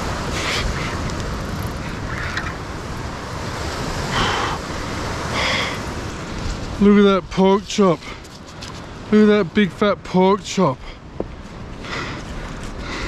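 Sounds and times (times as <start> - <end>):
wind on microphone: 0.0 - 9.1
surf washing against cliff: 0.0 - 12.8.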